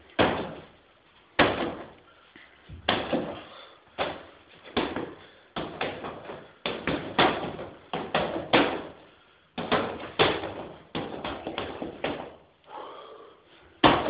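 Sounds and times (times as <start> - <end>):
strikes on padded target: 1.4 - 1.9.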